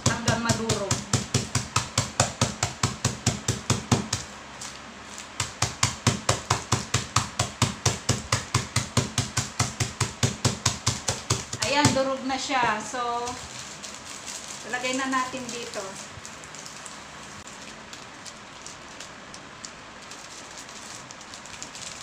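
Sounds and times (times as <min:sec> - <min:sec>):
crackers pounded on tabletop: 0:00.0 - 0:04.3, 0:05.3 - 0:12.1.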